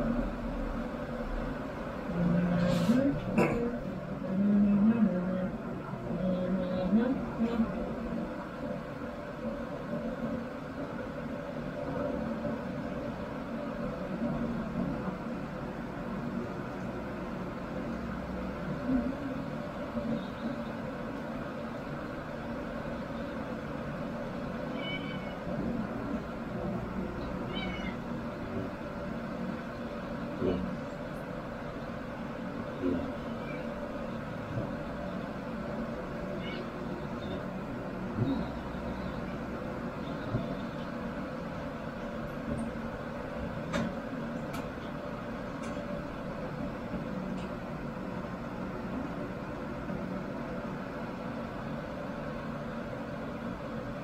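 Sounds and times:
steady background hum: 0.0 - 54.0
cat meowing: 24.7 - 25.5, 27.4 - 28.1, 33.2 - 33.8, 36.3 - 36.9.

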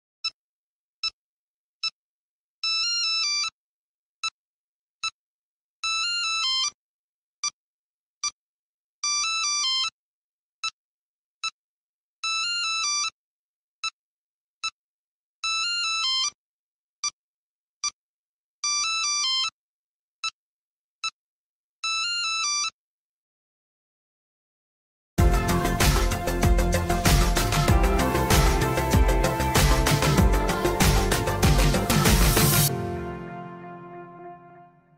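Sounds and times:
warbling electronic trill: 25.2 - 32.7.

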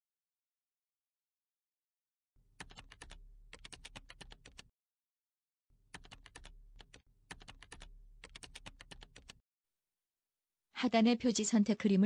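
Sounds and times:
keyboard typing: 2.5 - 4.7, 5.9 - 9.4.

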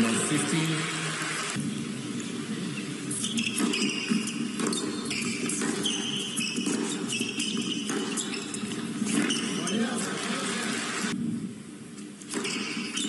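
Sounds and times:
shoes squeaking on court: 2.2 - 10.7, 12.2 - 13.0
racket hitting tennis ball: 3.3 - 10.4, 12.2 - 13.0.

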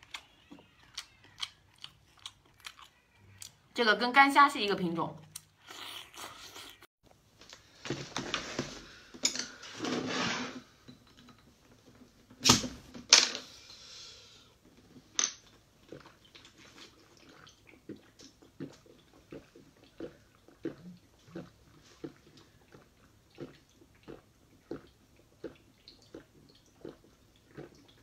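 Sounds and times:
gulps of drink being swallowed: 17.2 - 28.0.

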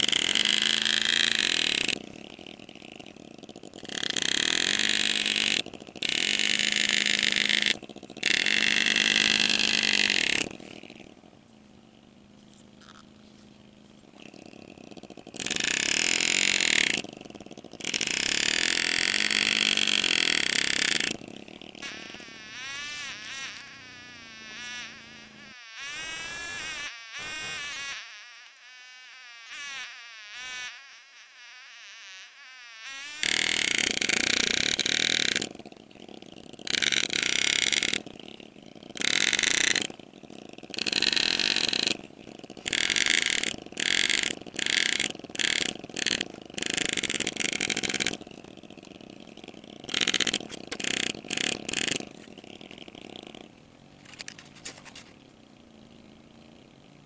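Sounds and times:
engraving tool buzzing: 0.0 - 11.1, 14.4 - 38.2, 39.0 - 39.9, 40.8 - 42.0, 42.6 - 48.2, 49.8 - 52.5.

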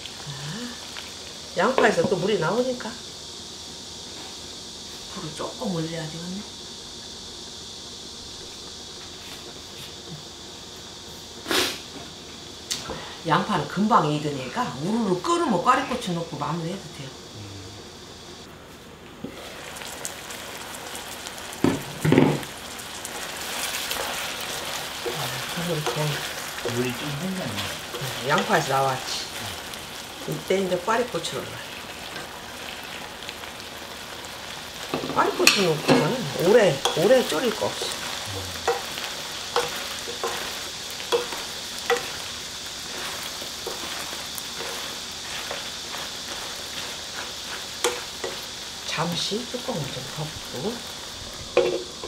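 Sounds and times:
sauce bubbling and sizzling: 0.0 - 52.0
wooden spoon knocking a pan: 21.6 - 22.5, 51.6 - 52.0
wooden spatula stirring: 42.8 - 48.4.

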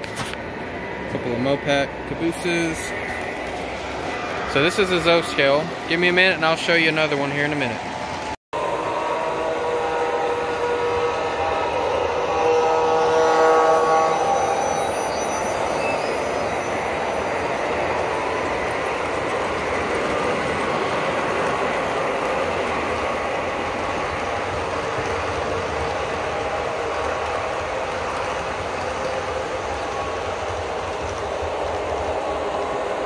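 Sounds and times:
model train rumbling on rails: 0.0 - 33.0
held multi-pitch tone: 8.6 - 17.9.

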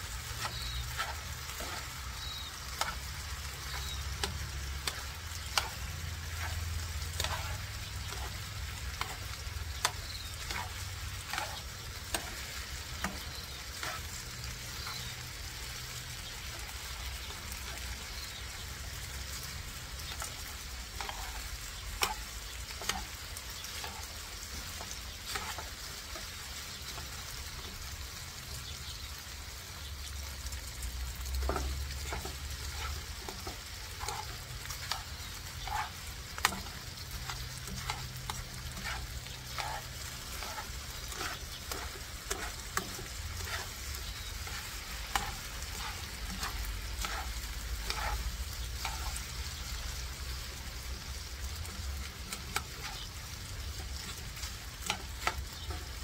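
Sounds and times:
meat sizzling in a frying pan: 0.0 - 56.0
metal tongs clicking and scraping: 3.7 - 8.4, 31.4 - 49.2.

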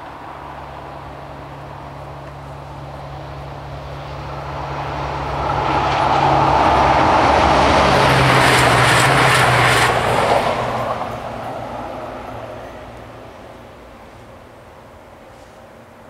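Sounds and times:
train rolling past: 0.0 - 16.0.

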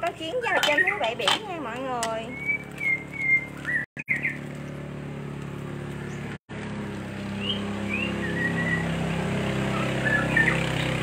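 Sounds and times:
low motor hum: 0.0 - 11.0
bird chirps: 0.4 - 1.2, 2.2 - 4.5, 7.3 - 8.9, 9.7 - 11.0.

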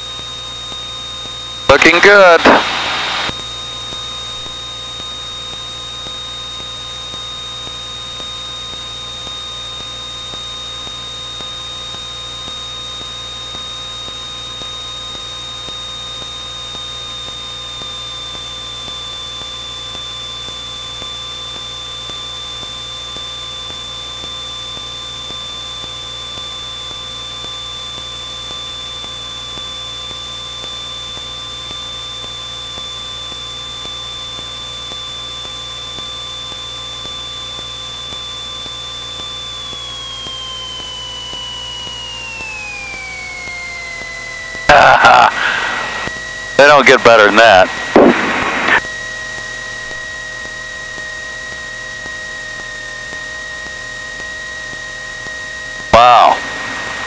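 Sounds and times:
aircraft cockpit drone: 0.0 - 57.0
thin high whine: 1.7 - 4.8, 39.6 - 57.0.

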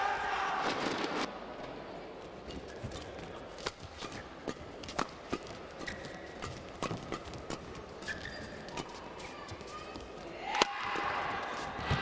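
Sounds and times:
shoes squeaking on court: 2.4 - 4.4, 5.7 - 10.2.

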